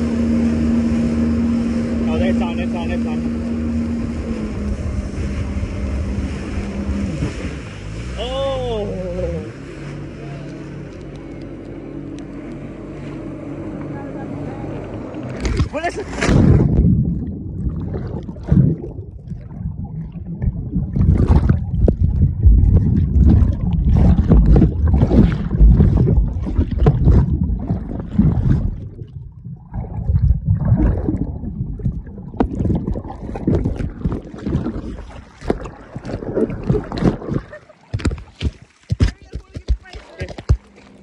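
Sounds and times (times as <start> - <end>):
underwater churning and bubbling: 0.0 - 12.8, 14.7 - 41.0
knocks and splashes in water: 0.0 - 41.0.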